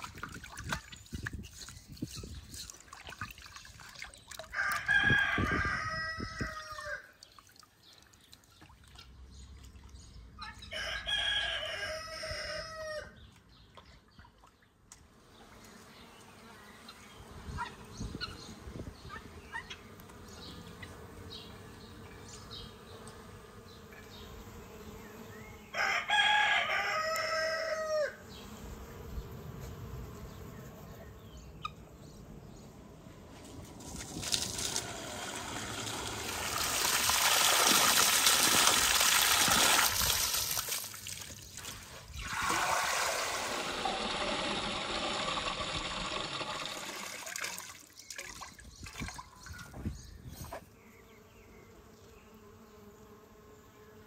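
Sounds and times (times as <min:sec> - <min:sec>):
rooster crowing: 0:04.5 - 0:07.1, 0:10.7 - 0:13.2, 0:25.7 - 0:28.2.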